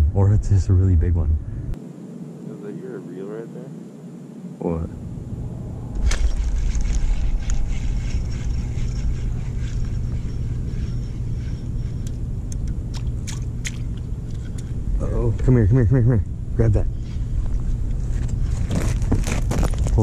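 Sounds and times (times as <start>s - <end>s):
wind buffeting microphone: 4.9s - 15.6s.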